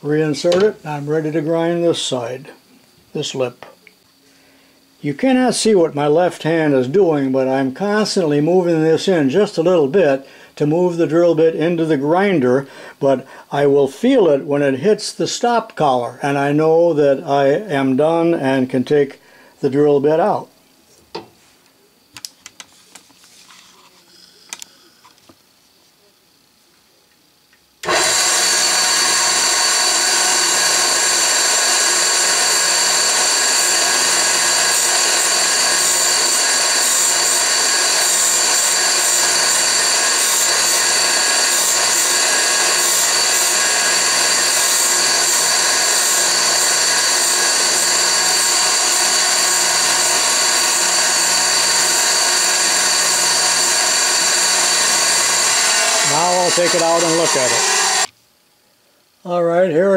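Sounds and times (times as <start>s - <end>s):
grinder wheel whining: 27.8s - 58.1s.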